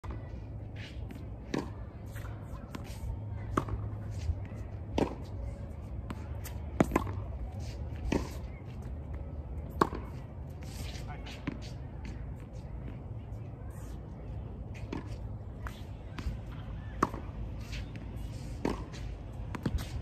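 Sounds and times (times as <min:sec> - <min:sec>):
racket hitting tennis ball: 0:00.8 - 0:08.9, 0:09.6 - 0:12.2, 0:14.7 - 0:20.0
tennis balls bouncing on court: 0:01.0 - 0:10.5, 0:11.2 - 0:20.0.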